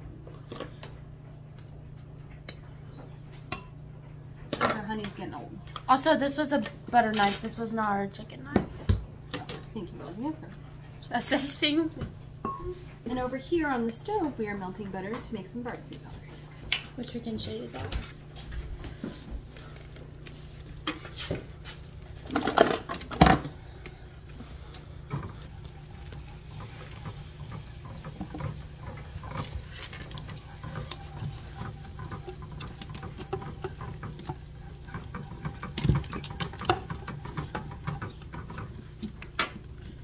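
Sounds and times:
butter sizzling in a frying pan: 24.8 - 38.9.

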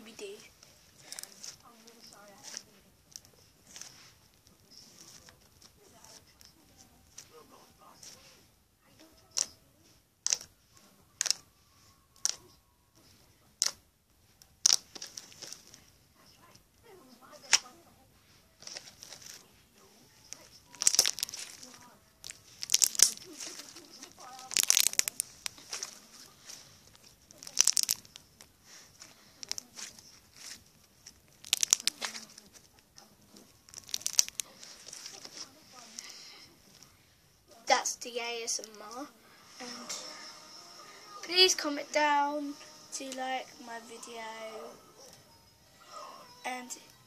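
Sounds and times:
slime crackling and popping: 9.3 - 9.6, 10.2 - 10.5, 11.2 - 11.5, 12.2 - 12.6, 13.6 - 13.8, 14.4 - 15.8, 20.3 - 35.4.

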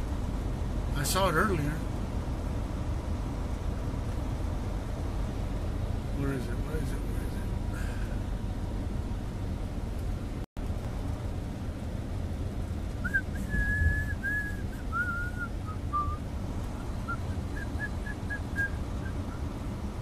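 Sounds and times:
low rumble of vehicle cab: 0.0 - 20.0
person whistling a tune: 13.0 - 16.2, 17.6 - 19.2.

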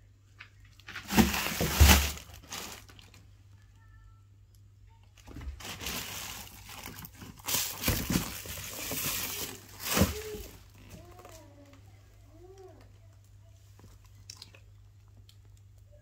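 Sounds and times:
paper and plastic crinkling: 0.4 - 3.3, 5.2 - 11.8.

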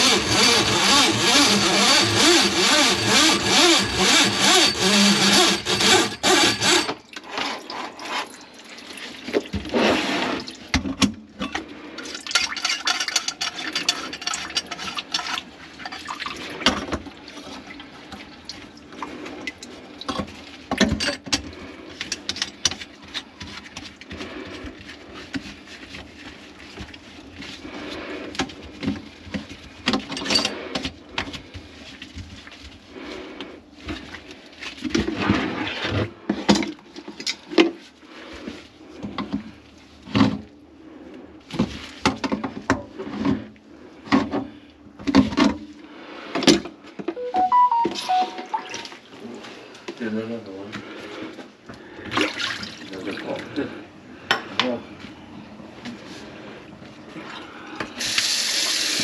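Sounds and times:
tools and pipe parts clattering: 0.0 - 8.4, 10.7 - 17.6, 20.1 - 24.1, 28.4 - 31.4
short tones: 47.2 - 49.0.

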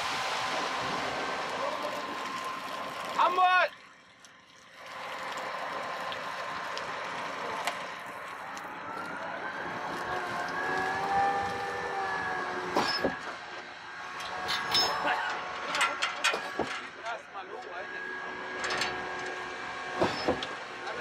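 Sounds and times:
multi-tone machine whine: 5.5 - 15.7, 17.5 - 21.0
metal clatters: 14.2 - 17.2.

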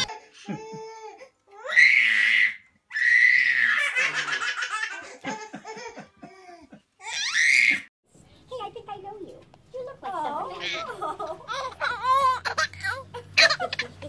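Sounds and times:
baby laughing: 3.7 - 7.8, 10.4 - 14.0.

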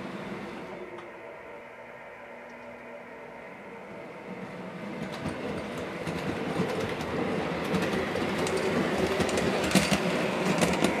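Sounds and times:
model train rumbling: 0.0 - 11.0
wheels clicking over rail joints: 5.0 - 11.0.

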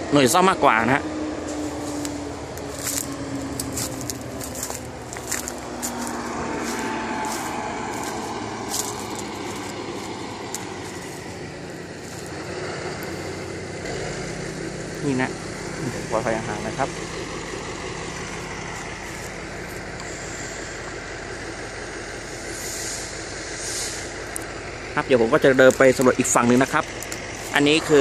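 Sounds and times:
engine hum: 0.0 - 28.0
footsteps crunching on gravel: 1.6 - 13.5, 18.1 - 19.9, 25.5 - 28.0.

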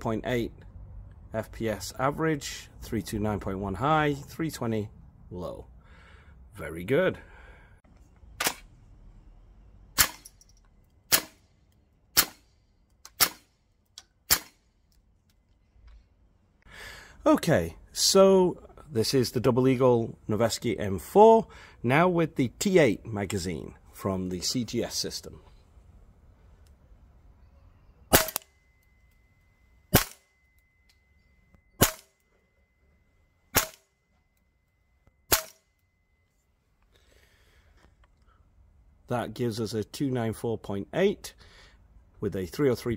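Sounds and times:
airsoft rifle shots: 10.0 - 10.3, 11.1 - 11.4, 12.1 - 12.5, 13.1 - 13.5, 14.3 - 14.6, 28.1 - 28.5, 29.9 - 30.3, 31.8 - 32.2, 33.5 - 33.9, 35.3 - 35.7.

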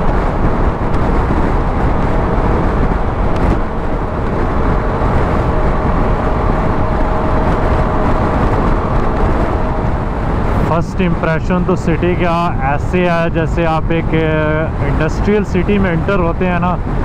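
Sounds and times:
motorcycle engine: 0.0 - 11.7
faint steady whine: 0.0 - 17.0
wind rushing over microphone: 0.0 - 17.0.

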